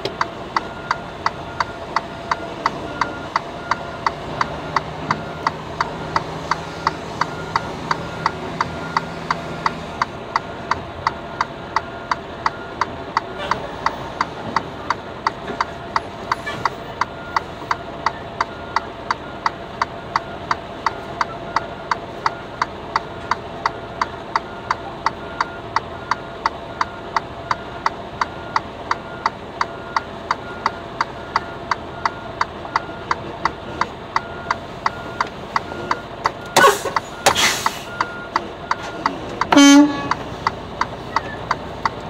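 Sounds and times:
truck reversing beeper: 0.0s - 42.0s
brief loud tone: 39.5s - 40.2s.

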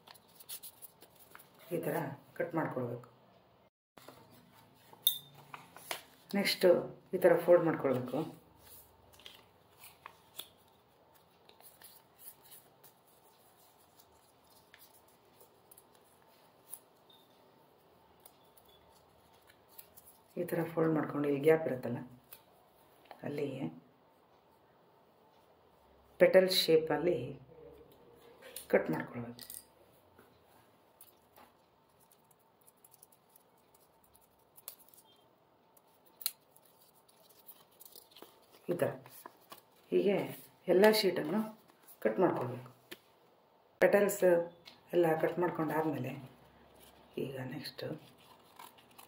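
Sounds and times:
paper being folded: 0.0s - 1.7s, 7.8s - 17.1s, 31.9s - 40.5s, 47.9s - 49.0s
scissors snipping paper: 32.0s - 35.2s, 35.8s - 39.6s, 48.0s - 49.0s.

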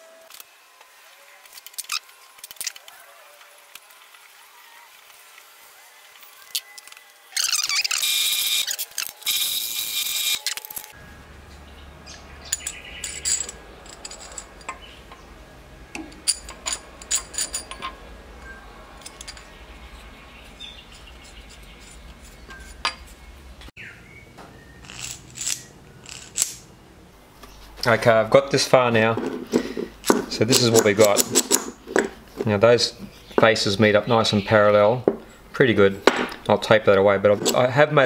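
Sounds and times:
low motor hum: 11.0s - 23.7s
clinks of steel parts: 12.4s - 15.2s, 16.0s - 19.6s, 24.8s - 26.6s.

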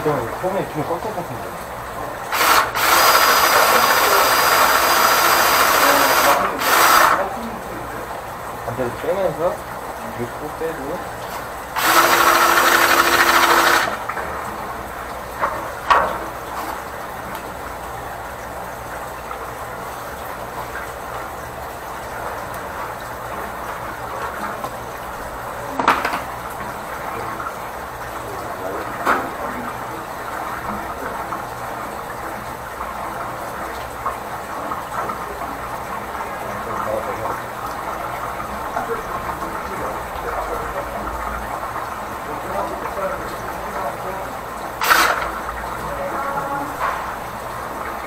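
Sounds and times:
loud burst with steady tone: 2.2s - 8.0s, 11.8s - 14.1s, 44.8s - 45.6s.

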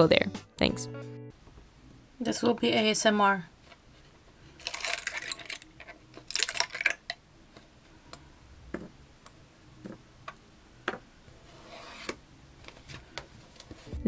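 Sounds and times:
plastic parts crackling and popping: 4.6s - 7.2s.

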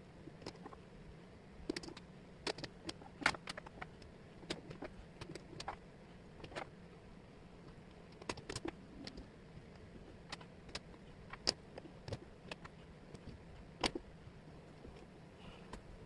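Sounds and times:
faint steady hiss: 0.0s - 16.0s
wooden puzzle pieces clicking: 1.7s - 5.8s, 8.1s - 9.3s, 10.2s - 14.0s.

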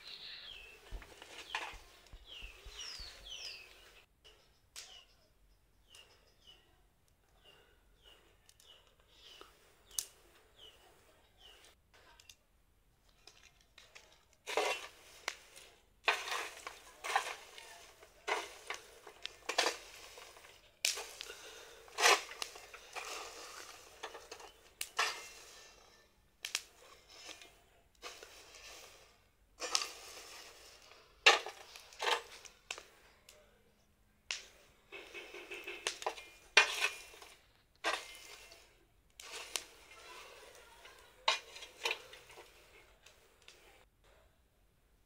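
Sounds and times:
peels rustling: 13.0s - 33.1s, 34.3s - 43.8s
stick scraping on iron sheet: 14.5s - 25.9s, 28.0s - 32.5s, 35.0s - 40.6s, 41.2s - 42.8s.

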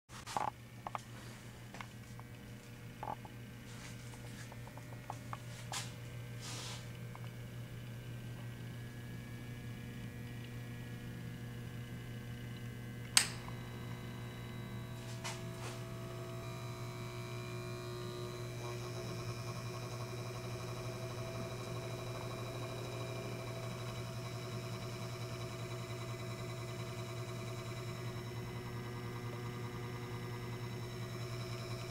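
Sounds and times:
steady low hum: 0.1s - 31.9s
electric motor whine: 7.2s - 31.9s
switch click: 13.2s - 13.5s.

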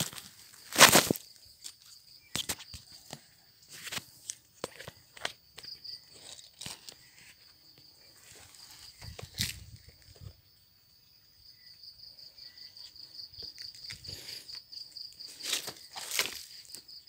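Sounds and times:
footsteps through undergrowth: 0.0s - 7.4s, 8.1s - 10.0s, 13.5s - 17.0s
insects trilling: 0.0s - 17.0s.

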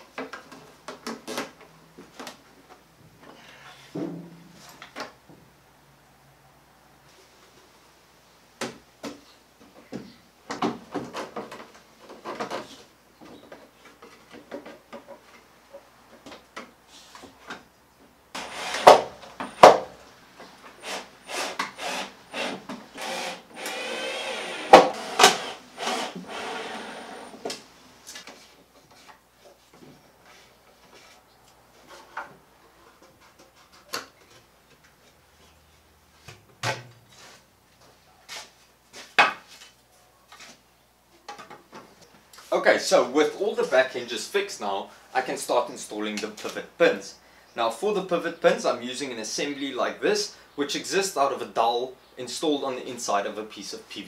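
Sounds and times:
cordless drill driving screws: 18.4s - 19.7s, 20.8s - 27.4s.

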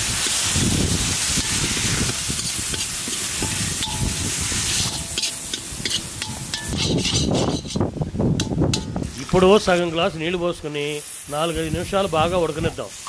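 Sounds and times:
onions and spices sizzling in a pan: 0.0s - 9.9s, 10.7s - 13.0s
spatula scraping a pan: 1.3s - 7.9s.

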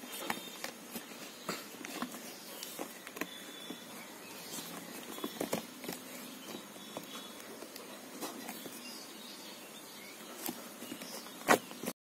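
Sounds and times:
cardboard box tapping and rubbing: 4.5s - 7.2s.

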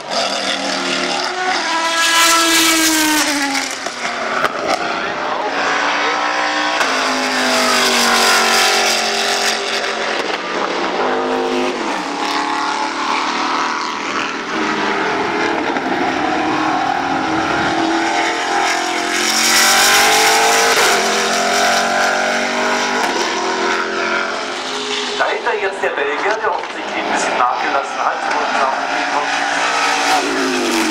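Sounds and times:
race car engine revving: 0.0s - 30.9s.

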